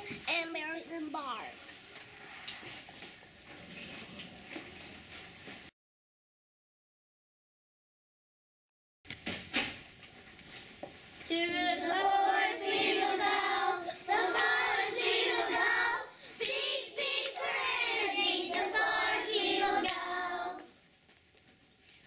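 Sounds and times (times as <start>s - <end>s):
children singing: 11.3s - 20.7s.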